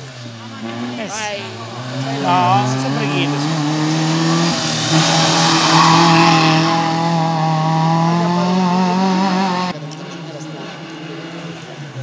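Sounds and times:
race car engine at high revs: 0.0 - 12.0.

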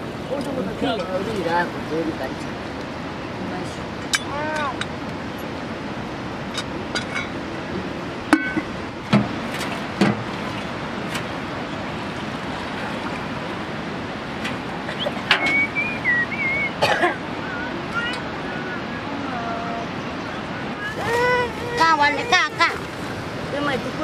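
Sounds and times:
river rushing: 0.0 - 24.0
high wavering calls: 14.9 - 22.8.

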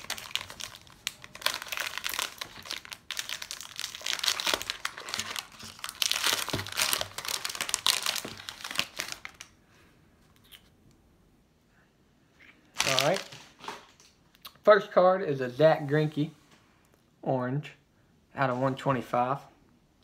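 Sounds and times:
foil wrapper tearing and crinkling: 0.0 - 9.5, 12.8 - 14.0.

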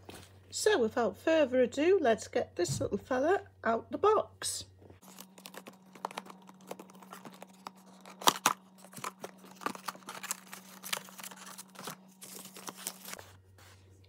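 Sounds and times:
cardboard box being opened: 5.0 - 13.3.

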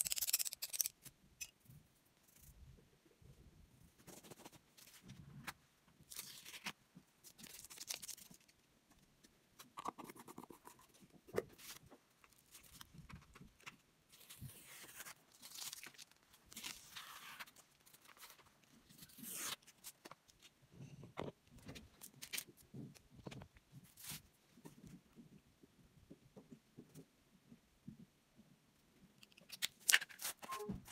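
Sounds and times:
paper crinkling: 11.6 - 20.5
masking tape ripping off paper: 19.0 - 19.8.

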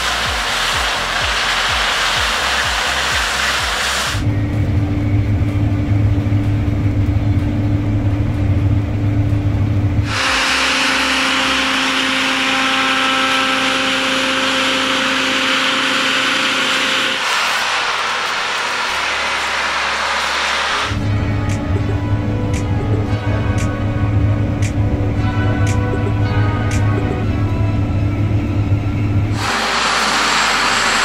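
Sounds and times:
combine harvester running: 0.0 - 31.0
faint machine whine: 4.2 - 31.0.

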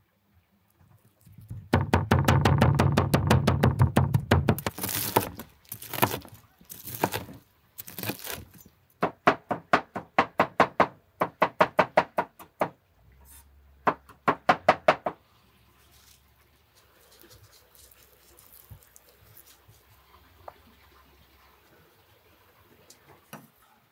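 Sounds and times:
cleaver chopping on wooden board: 1.8 - 8.4.

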